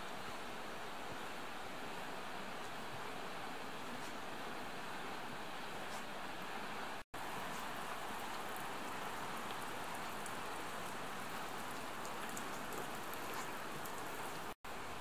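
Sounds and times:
rain hissing: 6.8 - 15.0
raindrops ticking: 7.2 - 14.6.

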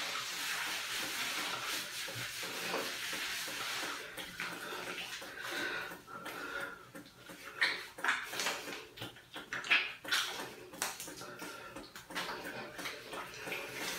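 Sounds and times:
shower water spraying: 0.0 - 5.7.

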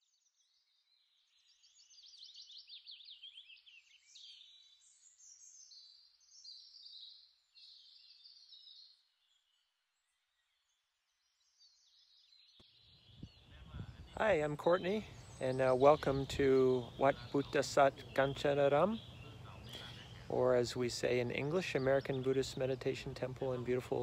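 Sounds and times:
small birds chirping and trilling: 0.0 - 24.0.

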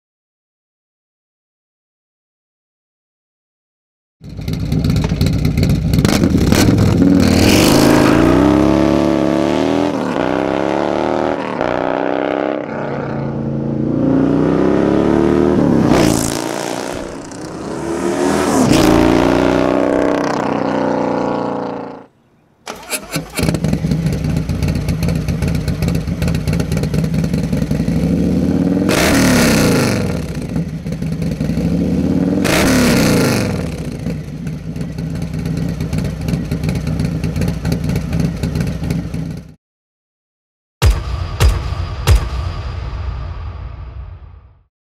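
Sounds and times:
motorcycle idling and revving: 4.2 - 12.3, 13.1 - 22.1, 22.7 - 39.6
motorcycle accelerating through gears: 4.2 - 22.1, 22.7 - 39.6.

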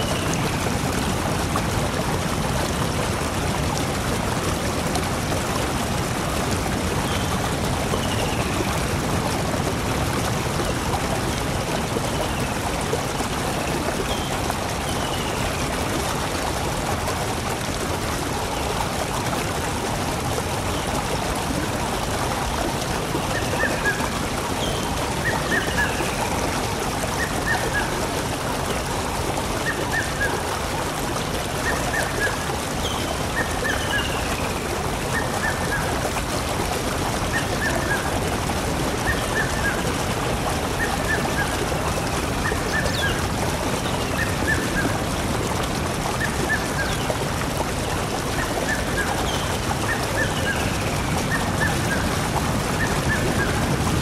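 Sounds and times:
rush of flowing water: 0.0 - 54.0.

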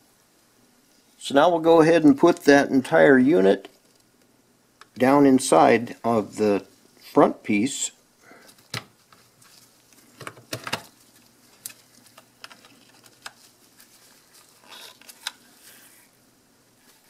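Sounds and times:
gloved hands rubbing: 11.0 - 16.2.

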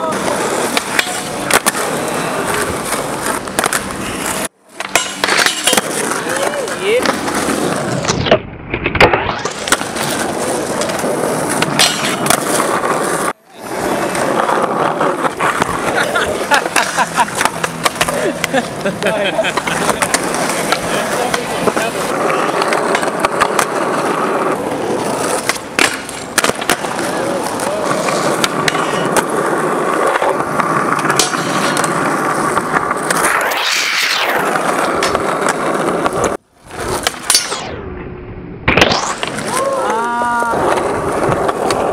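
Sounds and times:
skateboard clacks: 0.0 - 37.4, 39.1 - 41.9
skateboard wheels rolling on asphalt: 0.0 - 41.9.

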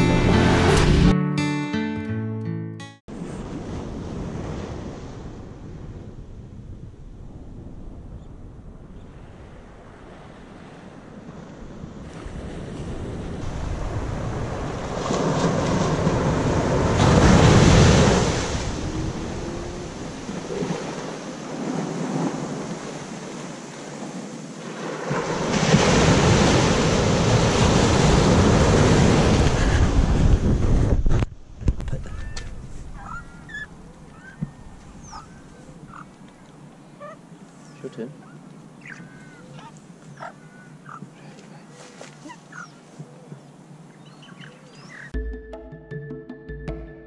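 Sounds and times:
waves breaking on sandy beach: 3.1 - 8.0, 8.6 - 31.0
wind on microphone: 3.1 - 24.3, 25.0 - 36.2.

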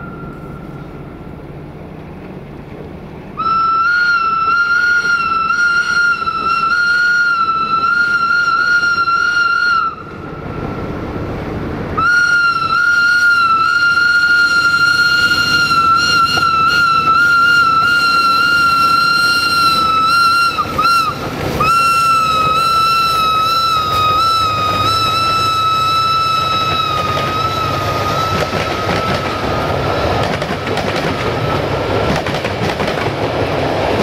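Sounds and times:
train rumble: 0.0 - 34.0
locomotive horn blasts: 3.4 - 10.7, 12.0 - 30.1.

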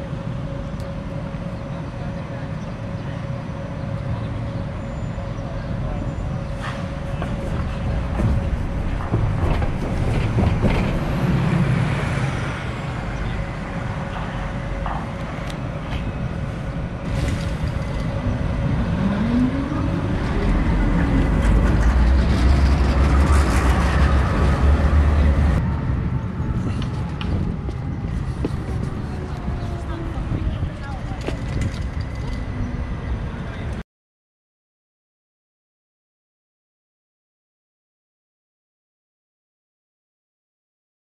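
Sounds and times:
large engine rumbling: 0.0 - 33.8
rising whine: 3.4 - 30.5.

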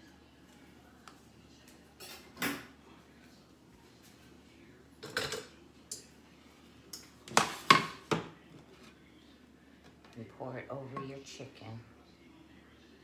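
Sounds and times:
dishes and utensils clinking: 5.0 - 6.2.

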